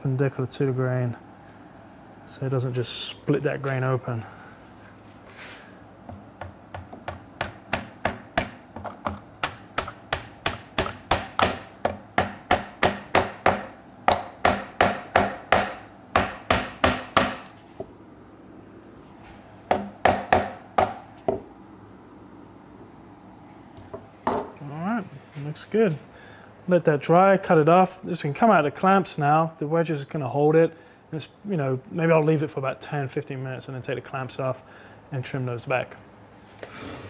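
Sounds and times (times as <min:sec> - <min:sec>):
hammer tapping wooden wedges: 0:06.1 - 0:17.9, 0:19.7 - 0:21.5.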